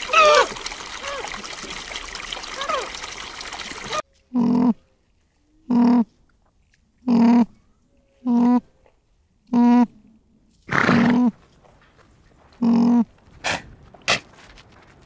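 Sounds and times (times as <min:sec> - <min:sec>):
animal calling: 0:00.0 - 0:01.6, 0:02.3 - 0:04.8.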